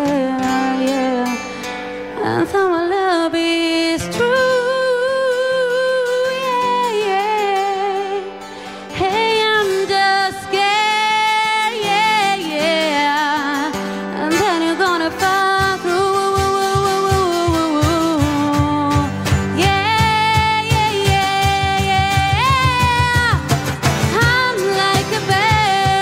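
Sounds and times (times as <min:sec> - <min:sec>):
woman singing into a microphone: 0:00.0 - 0:26.0
instrumental accompaniment: 0:11.1 - 0:26.0.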